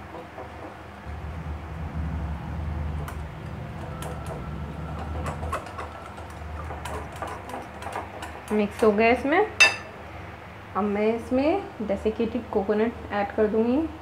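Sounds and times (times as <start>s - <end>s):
whisk beating thick mixture: 4.0s - 8.9s.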